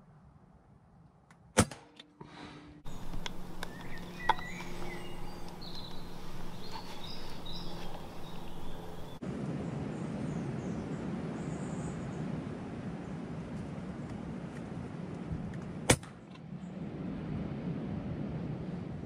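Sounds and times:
outdoor background noise: 0.0s - 19.0s
air rifle shot: 1.6s - 2.0s
birds chirping and singing: 2.9s - 9.2s.

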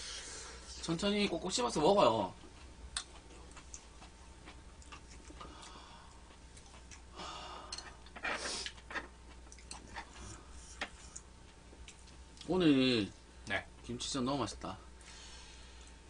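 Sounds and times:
chewing: 2.5s - 7.1s, 7.9s - 12.5s.

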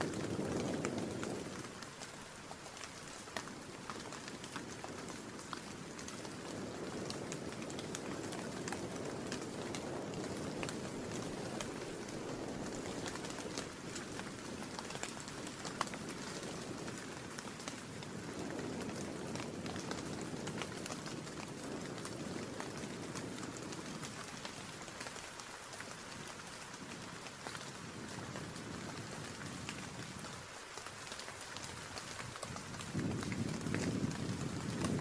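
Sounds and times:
low rush of wind: 0.0s - 1.8s, 3.6s - 24.8s, 31.7s - 35.0s
rain drops ticking: 0.0s - 35.0s.

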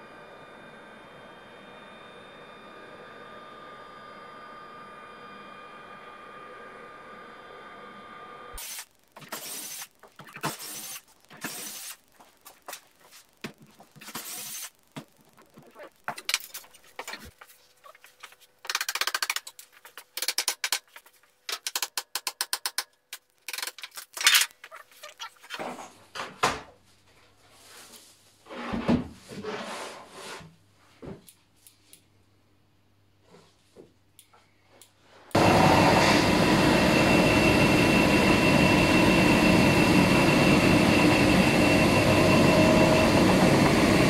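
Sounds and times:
cordless drill running: 8.5s - 12.0s
scraping and rubbing: 15.4s - 21.4s.

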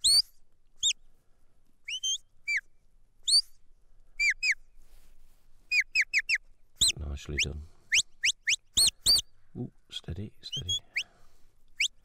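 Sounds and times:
sharp whistle commands: 0.0s - 1.0s, 1.9s - 2.6s, 5.7s - 9.2s.

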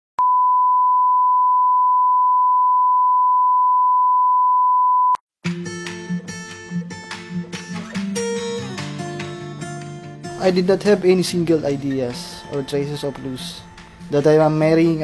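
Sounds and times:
single-pitch test tone: 0.2s - 5.2s
music: 5.4s - 15.0s.

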